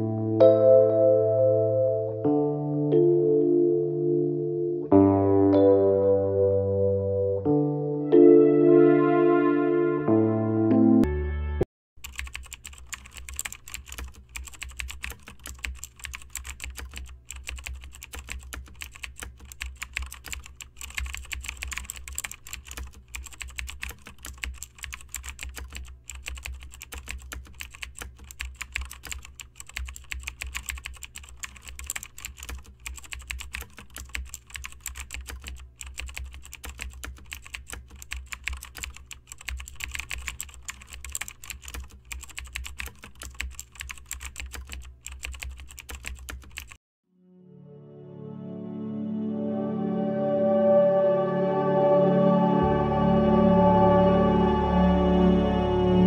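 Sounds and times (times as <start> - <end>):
keyboard typing: 12.0 - 46.8.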